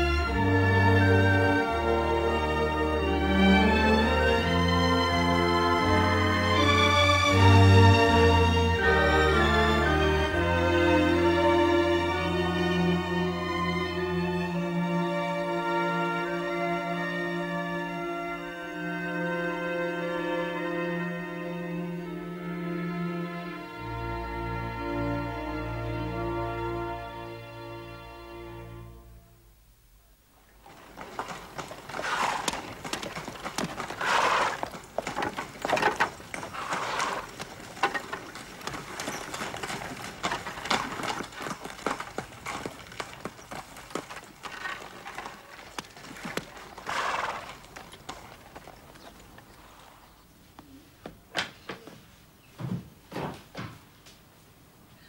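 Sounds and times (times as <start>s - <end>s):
horse hooves clip-clopping: 30.4s - 52.1s.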